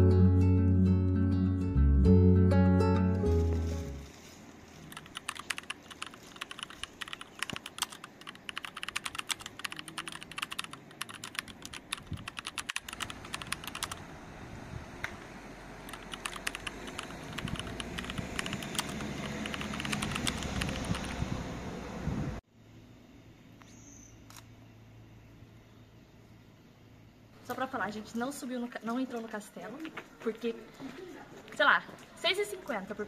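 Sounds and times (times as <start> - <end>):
steady background noise: 4.1 - 33.0
keyboard typing clicks: 4.9 - 14.0, 15.9 - 21.2.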